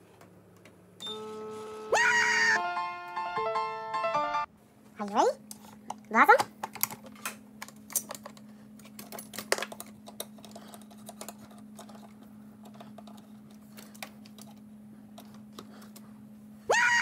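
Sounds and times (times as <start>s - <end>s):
steady low hum: 4.4s - 16.7s.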